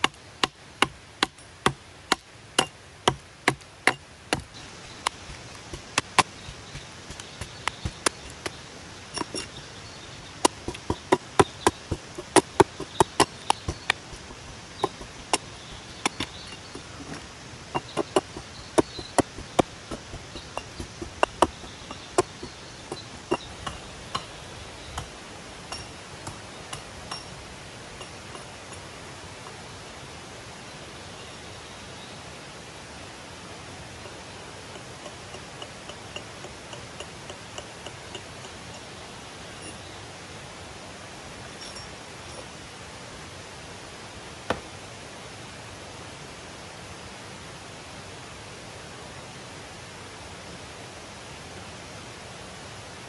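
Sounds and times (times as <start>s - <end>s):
hatchet chopping log: 0.0s - 8.6s, 10.3s - 25.1s, 44.5s - 44.7s.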